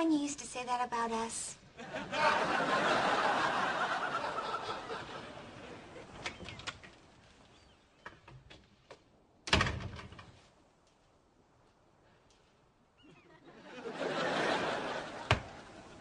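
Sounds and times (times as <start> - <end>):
audience laughter: 1.8 - 6.2, 13.2 - 16.0
door shutting with a bang: 9.5 - 10.3.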